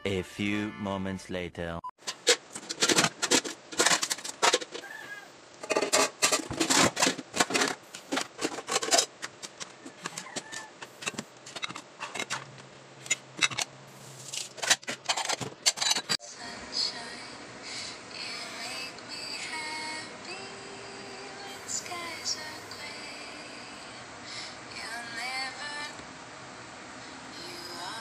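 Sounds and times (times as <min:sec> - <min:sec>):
metal spoon scraping a pan: 0:02.0 - 0:04.9, 0:05.6 - 0:16.2.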